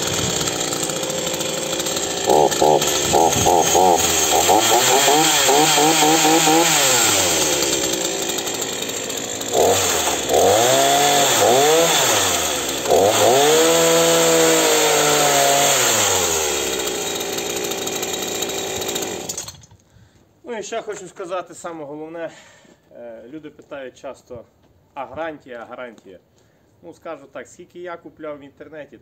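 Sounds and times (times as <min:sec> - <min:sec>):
chainsaw revving and idling: 0:00.0 - 0:19.7.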